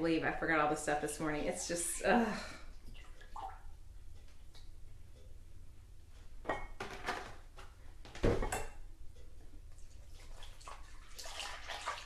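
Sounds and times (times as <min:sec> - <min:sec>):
kitchen items knocking and clattering: 0:06.4 - 0:08.8.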